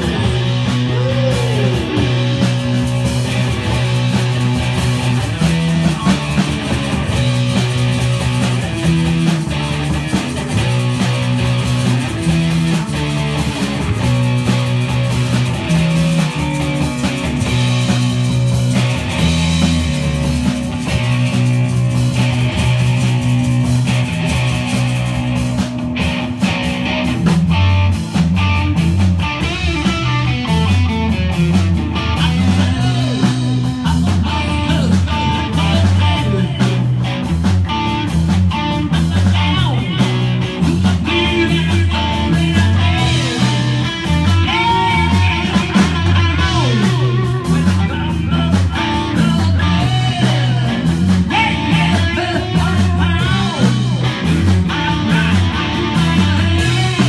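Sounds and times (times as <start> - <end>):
bass line: 0.0 - 57.0
drum kit with cymbals: 0.0 - 57.0
electric guitar: 0.0 - 57.0.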